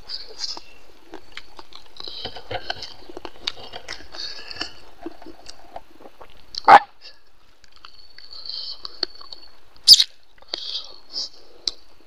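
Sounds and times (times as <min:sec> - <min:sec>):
chewing: 0:00.4 - 0:06.7.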